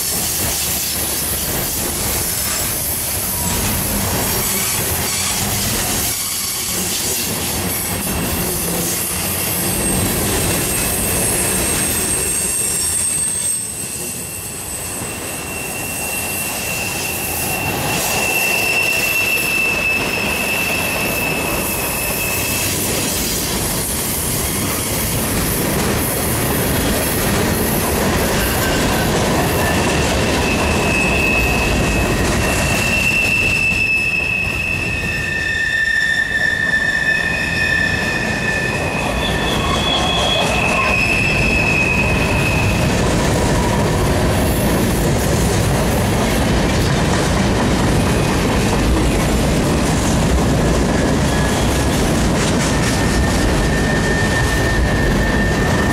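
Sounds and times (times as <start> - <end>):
train wheels rumbling on rail: 0.0 - 55.9
high wheel squeals: 0.8 - 7.0, 8.6 - 23.3, 26.7 - 44.0, 51.1 - 55.9.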